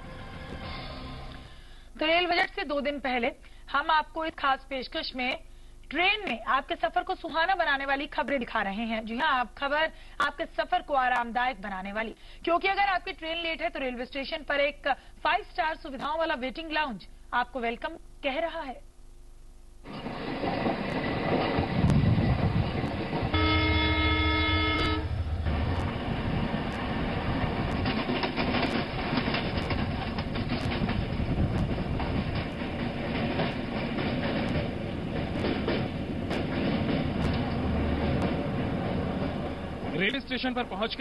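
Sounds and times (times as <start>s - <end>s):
train wheels clacking on rails: 19.9s - 40.3s
multi-tone train horn blast: 23.3s - 25.8s.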